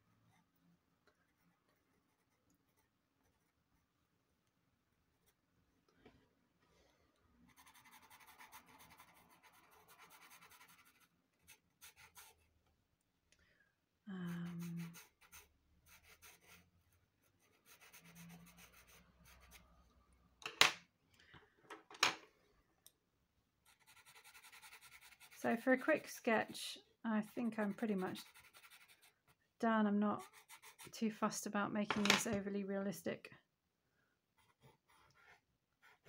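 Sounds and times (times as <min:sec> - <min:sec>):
pencil scratching on paper: 0:00.3 - 0:03.9, 0:07.5 - 0:12.5, 0:14.2 - 0:19.6, 0:23.6 - 0:26.6, 0:27.3 - 0:29.4, 0:30.1 - 0:31.0, 0:34.4 - 0:36.0.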